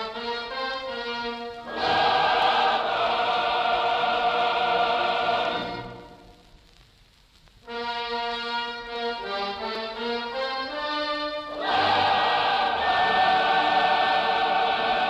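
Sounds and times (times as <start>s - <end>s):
choir singing held chord: 1.7s - 6.2s, 11.5s - 15.0s.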